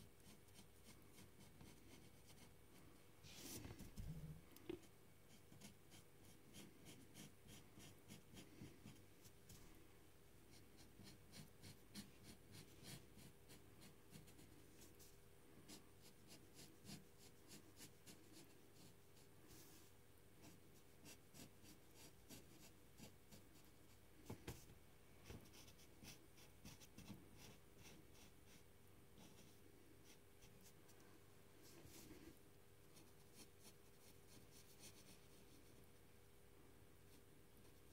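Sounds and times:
pen scratching on paper: 0.0s - 2.6s, 5.3s - 9.0s, 10.8s - 14.5s, 15.7s - 18.9s, 20.4s - 23.7s, 25.4s - 28.6s
faint steady hum: 0.0s - 37.9s.

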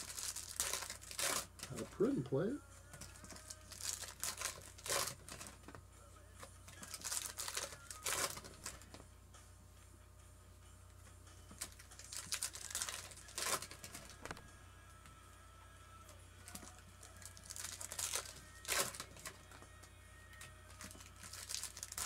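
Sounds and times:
foil wrappers crinkling: 0.0s - 2.2s, 2.9s - 5.8s, 6.7s - 9.0s, 11.6s - 14.4s, 16.4s - 19.6s, 20.3s - 22.0s.

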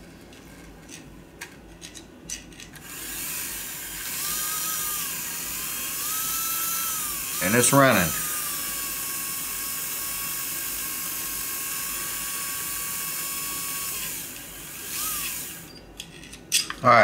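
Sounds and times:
small electric motor whining: 2.8s - 15.8s.

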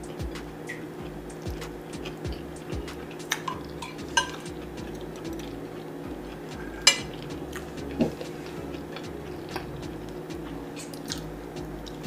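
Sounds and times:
low steady hum: 0.0s - 12.0s
cutlery clinking on plate: 6.8s - 7.2s.

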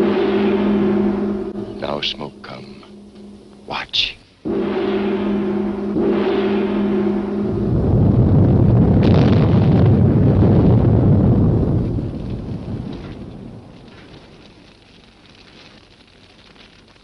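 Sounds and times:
smoke bomb blast rumble: 0.0s - 3.6s, 4.4s - 14.4s.

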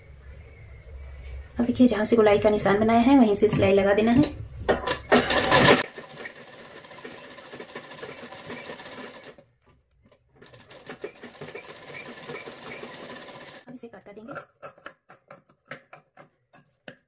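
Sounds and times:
sewing machine needle clattering: 4.8s - 9.4s.

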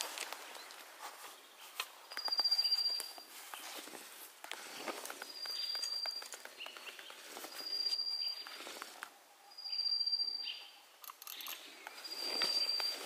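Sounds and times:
rustling undergrowth: 0.0s - 9.7s, 11.2s - 13.0s
bird high whistled note: 9.5s - 10.8s, 12.0s - 13.0s.

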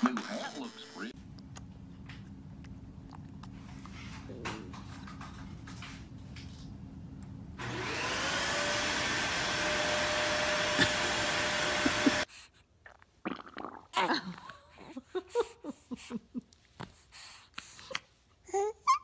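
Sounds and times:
electric motor whining: 7.6s - 12.3s.

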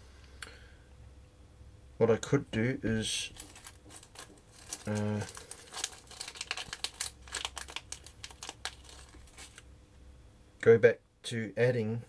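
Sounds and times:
plastic bag crinkling: 3.0s - 9.7s.

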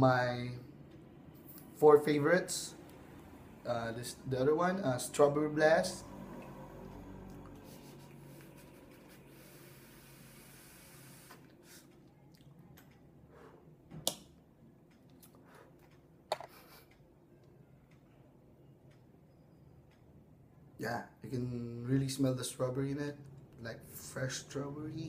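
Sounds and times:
vapour hiss from e-cigarette: 9.3s - 11.8s.

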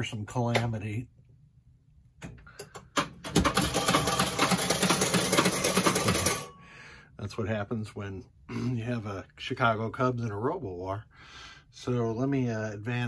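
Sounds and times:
pinball machine clicks: 2.7s - 6.6s
rapid mechanical clattering: 3.2s - 6.6s.

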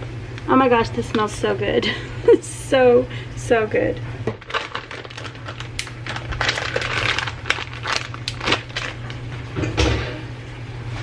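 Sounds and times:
plastic bag crinkling: 4.2s - 9.3s.

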